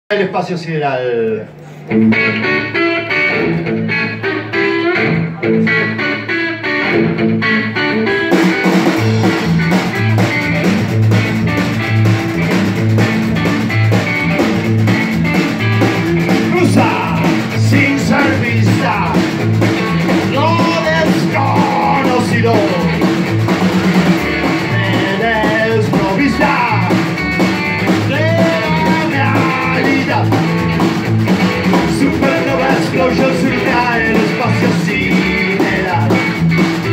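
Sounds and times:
electric guitar: 0:01.3 - 0:36.9
upright bass: 0:06.8 - 0:36.9
drum kit beat: 0:08.1 - 0:36.9
person singing: 0:16.3 - 0:19.4, 0:20.2 - 0:23.1, 0:24.3 - 0:27.1, 0:28.0 - 0:30.4, 0:31.7 - 0:36.4.

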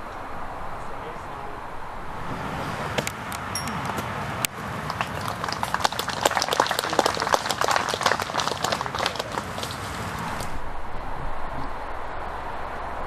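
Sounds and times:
small group applauding: 0:04.5 - 0:10.2.

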